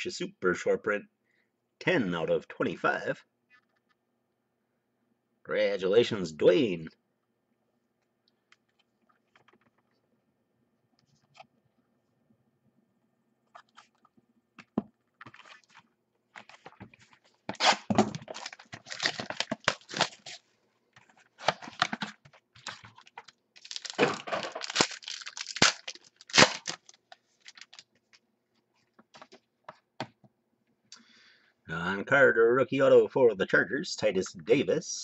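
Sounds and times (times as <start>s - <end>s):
cards clicking and rustling: 16.4s - 20.4s, 21.0s - 27.9s
plastic wrappers tearing and crinkling: 17.5s - 20.5s, 21.4s - 27.9s.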